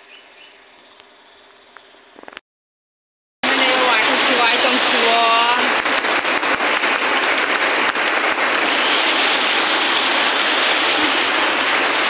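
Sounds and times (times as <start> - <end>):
heavy rain pouring off roof: 3.4 - 12.0.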